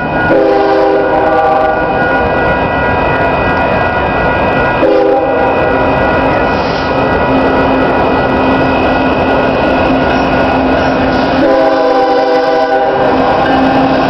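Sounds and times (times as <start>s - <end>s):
loud train noise: 0.0s - 14.0s
locomotive air horn: 0.3s - 2.0s, 4.8s - 5.6s, 11.2s - 13.9s.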